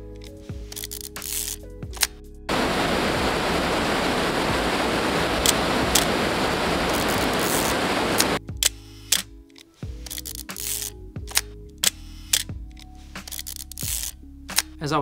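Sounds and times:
water rushing over a weir: 0:02.5 - 0:08.4.

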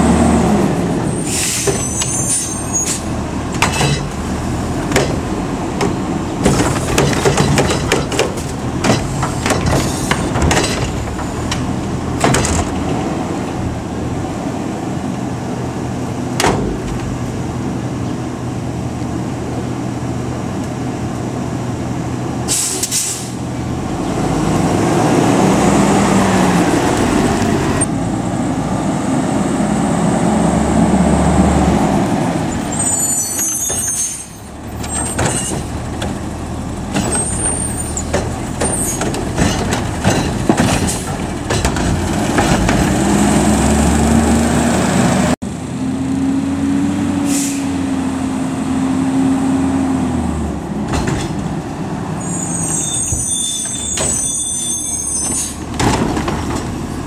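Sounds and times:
air brake hiss: 0:01.2 - 0:03.1, 0:22.5 - 0:23.4, 0:47.2 - 0:47.8
metal clanks and bangs: 0:03.5 - 0:04.2, 0:04.8 - 0:13.0, 0:36.9 - 0:43.1, 0:50.8 - 0:51.5
trash cart slamming on hopper: 0:04.8 - 0:13.0, 0:55.5 - 0:57.0
truck engine revving: 0:23.7 - 0:32.8, 0:34.6 - 0:52.2.

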